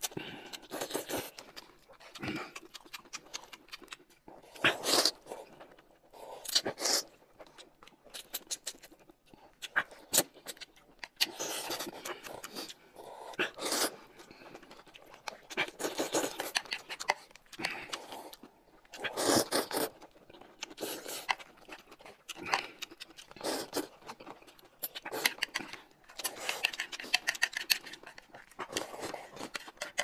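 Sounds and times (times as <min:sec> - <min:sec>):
wet chewing and lip-smacking: 0:00.0 - 0:30.0
noodles being slurped: 0:04.4 - 0:05.6, 0:11.2 - 0:30.0.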